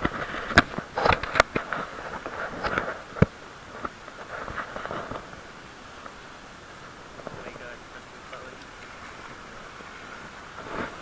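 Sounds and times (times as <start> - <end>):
background hiss: 0.0 - 11.0.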